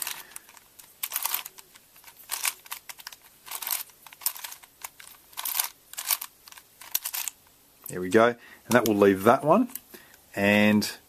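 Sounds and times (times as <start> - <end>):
puzzle cube clicking: 0.0 - 7.4.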